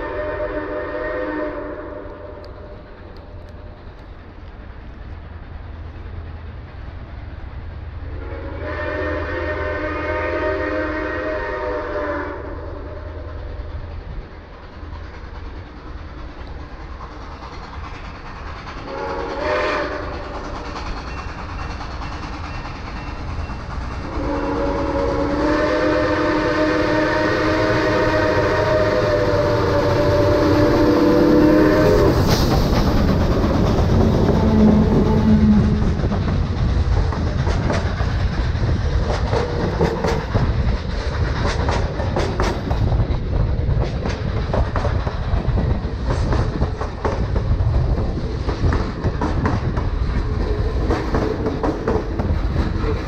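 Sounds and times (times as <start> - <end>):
steam whistle chord blasts: 0.0 - 2.4, 8.2 - 13.2, 18.9 - 20.2, 24.0 - 32.4
locomotive low rumble: 0.0 - 53.0.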